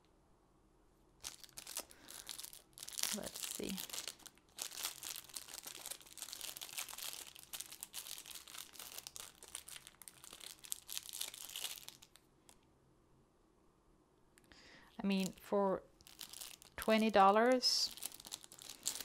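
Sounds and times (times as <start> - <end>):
plastic packaging crinkling: 1.2 - 12.3, 15.1 - 19.0.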